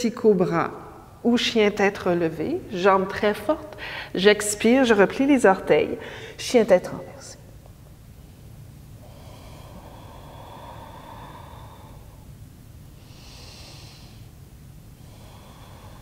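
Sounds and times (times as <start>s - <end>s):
woman breathing: 3.7s - 4.2s, 6.0s - 6.4s, 8.1s - 16.0s.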